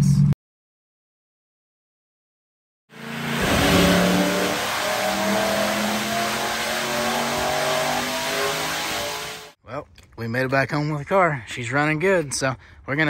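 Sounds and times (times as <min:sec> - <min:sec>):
engine running under load: 0:03.0 - 0:09.5.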